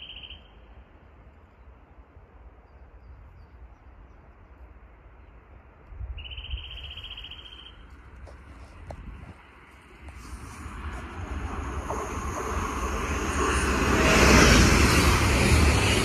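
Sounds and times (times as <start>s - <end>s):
faint outdoor background noise: 0.0s - 16.0s
wind rumbling on microphone: 7.9s - 16.0s.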